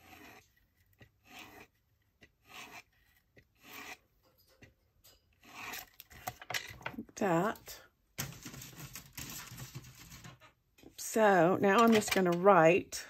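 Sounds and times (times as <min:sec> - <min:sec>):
rasping strokes across paper: 0:00.0 - 0:04.0, 0:05.4 - 0:05.9.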